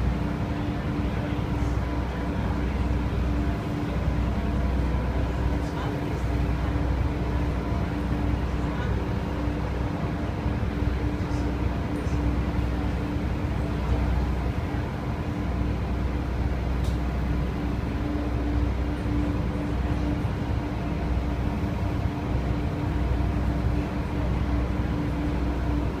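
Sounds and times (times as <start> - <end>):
ferry engines rumbling: 0.0 - 26.0.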